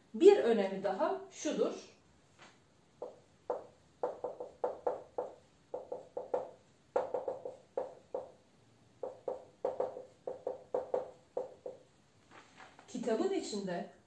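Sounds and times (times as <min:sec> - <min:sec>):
marker squeaking on whiteboard: 0:03.0 - 0:08.4, 0:09.0 - 0:11.9.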